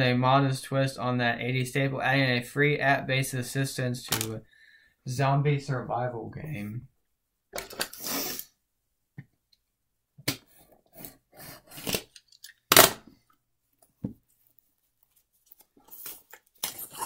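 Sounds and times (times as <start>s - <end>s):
loud sharp knock or tear: 12.7s - 13.1s.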